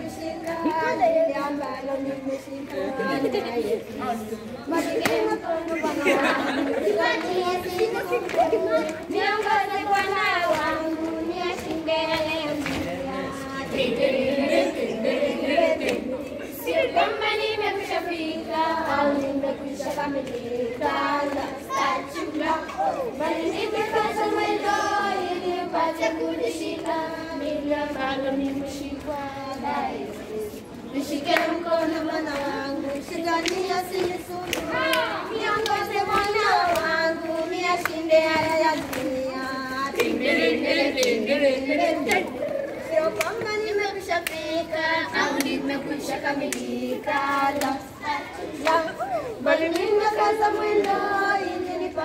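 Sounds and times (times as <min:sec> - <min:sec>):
children singing in chorus: 0:00.0 - 0:52.0
hand claps: 0:32.3 - 0:39.2, 0:41.0 - 0:41.2, 0:43.1 - 0:43.6, 0:44.2 - 0:44.5, 0:45.2 - 0:45.7, 0:46.4 - 0:47.8, 0:49.7 - 0:50.0.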